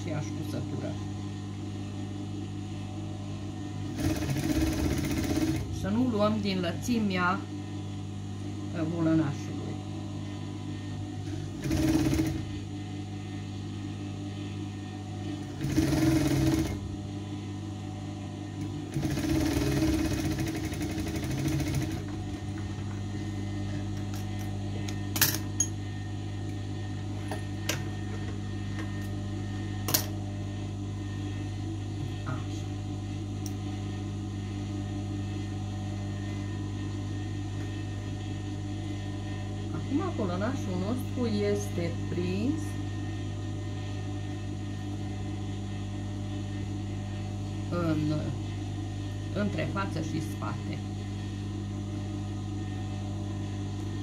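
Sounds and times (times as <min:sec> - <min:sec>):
electric sewing machine stitching: 0:03.9 - 0:05.8, 0:11.5 - 0:12.5, 0:15.5 - 0:16.8, 0:18.9 - 0:22.4.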